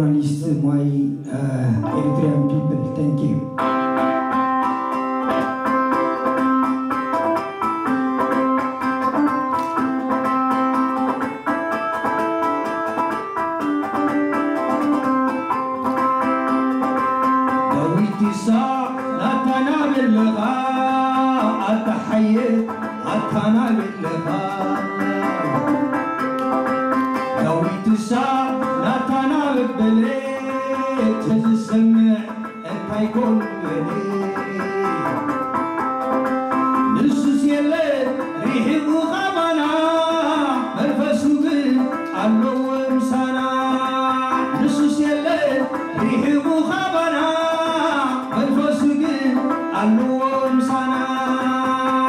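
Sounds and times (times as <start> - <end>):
man singing: 0.0 - 6.3, 17.4 - 26.1, 27.2 - 35.6, 36.8 - 52.0.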